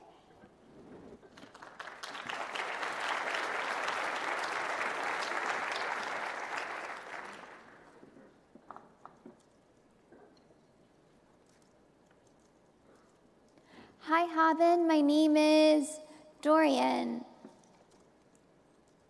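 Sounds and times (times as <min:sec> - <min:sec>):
large audience applauding: 0:01.3 - 0:08.0.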